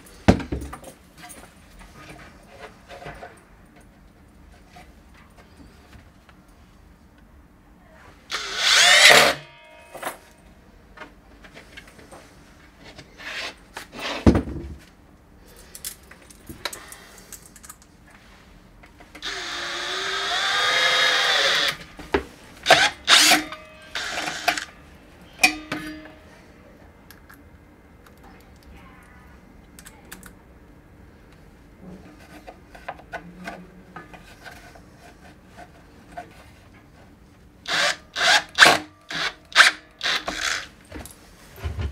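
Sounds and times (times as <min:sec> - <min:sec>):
cordless drill driving screws: 0:08.3 - 0:09.5, 0:19.2 - 0:21.9, 0:22.6 - 0:24.7, 0:37.7 - 0:40.7.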